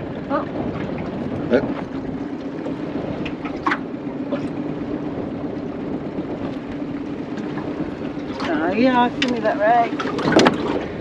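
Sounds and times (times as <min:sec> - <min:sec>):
outboard motor idling: 0:00.0 - 0:11.0
water noise: 0:00.0 - 0:11.0
wind: 0:00.0 - 0:11.0.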